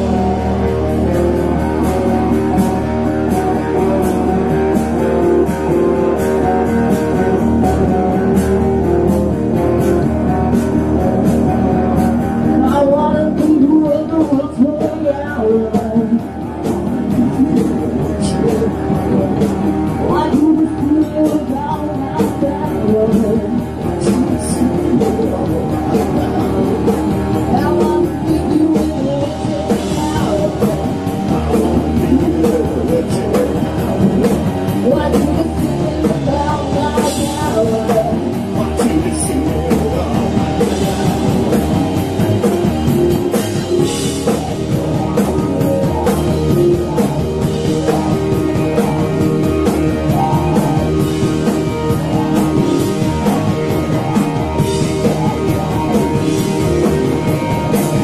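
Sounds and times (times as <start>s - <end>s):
drums: 0.0s - 58.0s
electric guitar: 0.0s - 58.0s
person singing: 11.2s - 41.8s.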